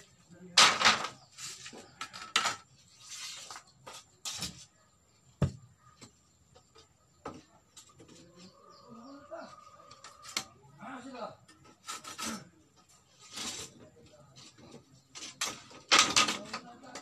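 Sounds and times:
bamboo strips scraping: 0.6s - 4.7s, 11.6s - 16.7s.

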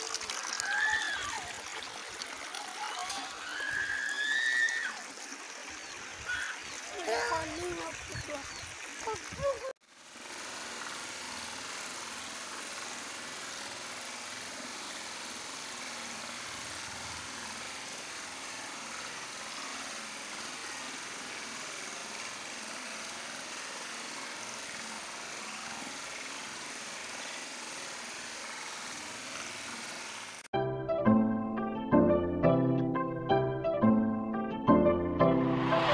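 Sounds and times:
water splashing over rocks: 0.0s - 30.5s.

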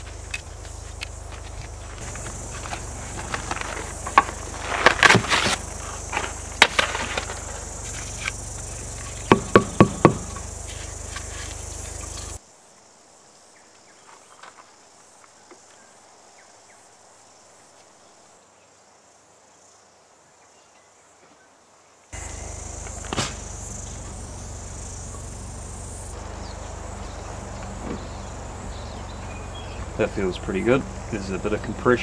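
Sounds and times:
sharp knocks and handling noise: 0.0s - 12.4s
insect chorus: 0.0s - 32.0s.

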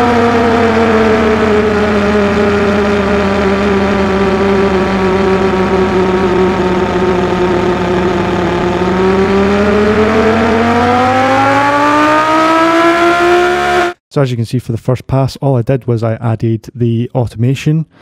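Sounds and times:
synthesised car engine: 0.0s - 14.0s.

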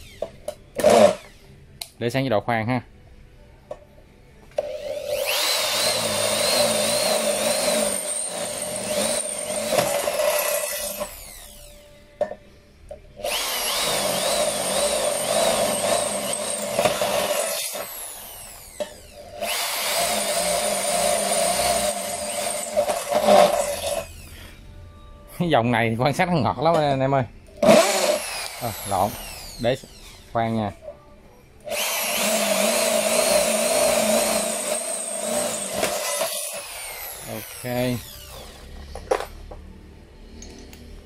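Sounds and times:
drill bit cutting into steel: 4.7s - 11.8s, 13.2s - 24.4s, 27.6s - 30.3s, 31.7s - 38.7s.

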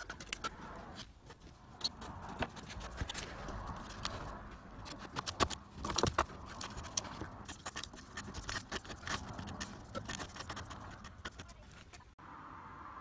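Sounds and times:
cable scraping and rustling: 0.0s - 12.2s.

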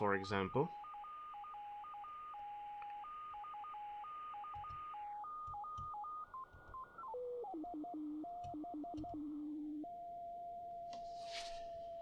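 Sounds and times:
tone hopping between two pitches: 0.0s - 10.3s.

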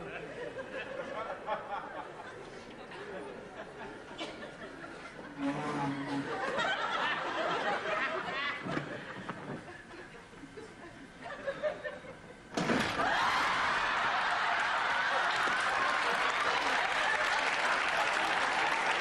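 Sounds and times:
studio audience laughing: 0.0s - 17.9s
audience applause: 12.9s - 19.0s.

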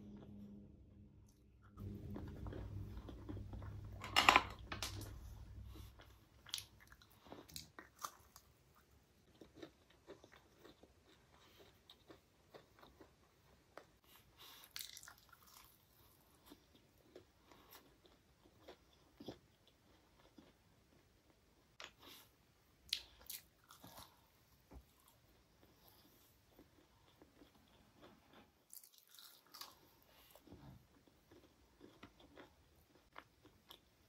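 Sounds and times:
low steady hum: 0.0s - 9.9s
person chewing: 1.8s - 22.3s, 22.9s - 34.0s.

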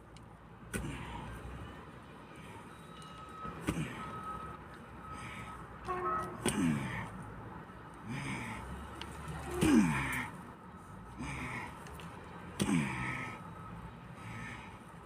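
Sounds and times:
heavy breathing: 5.0s - 5.8s, 8.0s - 12.0s, 12.6s - 15.0s
man grunting: 6.4s - 7.1s, 9.4s - 10.4s, 12.6s - 13.4s.

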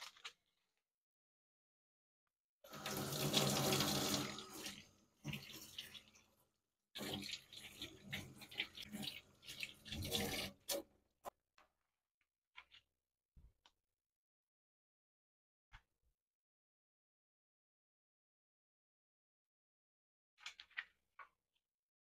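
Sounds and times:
tap water running into sink: 2.7s - 6.3s, 7.0s - 10.9s.

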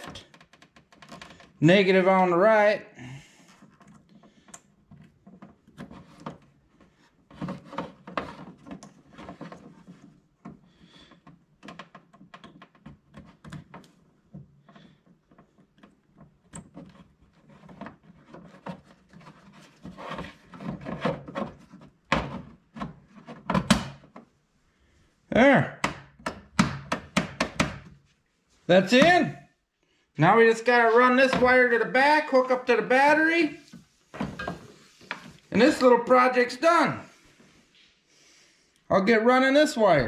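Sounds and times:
plastic rubbing and scraping: 3.5s - 24.4s.

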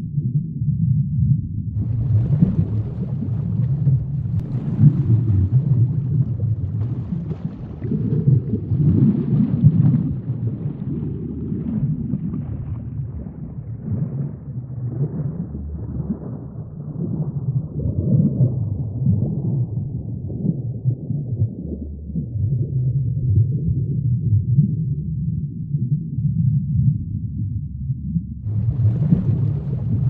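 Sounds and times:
muffled wash of sea water: 1.8s - 25.9s, 28.4s - 30.0s.

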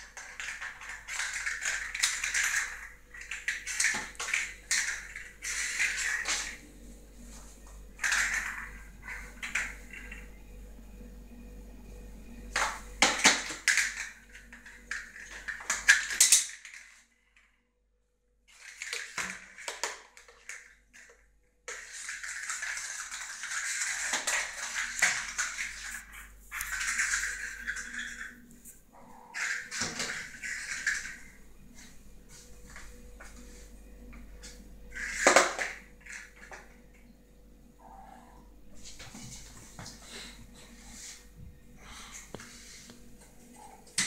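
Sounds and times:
kittens scratching on tiled floor: 0.0s - 10.2s, 18.5s - 36.8s, 37.8s - 44.0s.

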